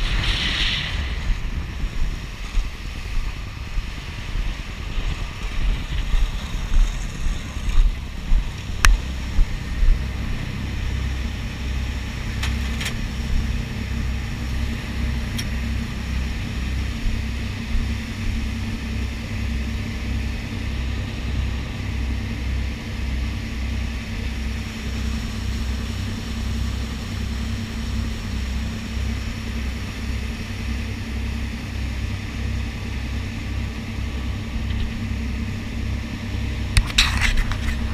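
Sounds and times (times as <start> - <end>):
water rushing past hull: 0.0 - 12.4
wind on microphone: 0.0 - 20.4, 33.7 - 37.9
boat engines throbbing drone: 0.0 - 37.9
heavy low thumps: 0.9 - 12.3.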